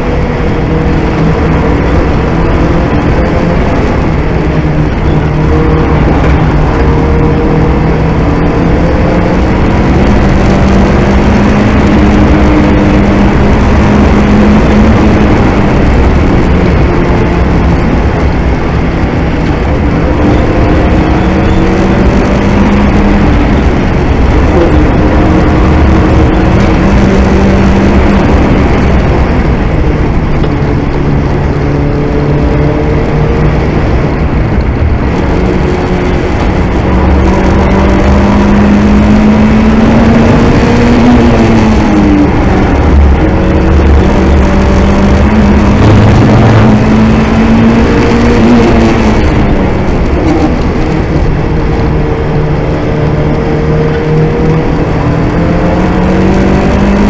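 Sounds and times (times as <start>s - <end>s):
car engine revving under load: 0.0s - 57.0s
road and wind noise: 0.0s - 57.0s.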